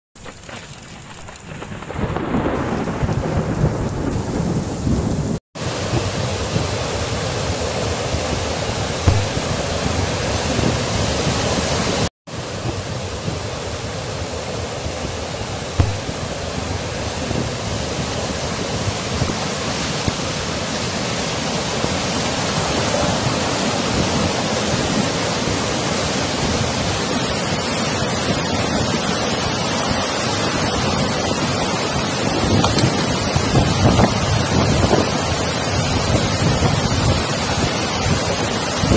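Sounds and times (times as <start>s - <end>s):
heavy rain downpour: 0.2s - 38.9s
thunder thumps: 1.1s - 6.8s, 9.0s - 11.0s, 12.6s - 13.8s, 15.0s - 18.3s.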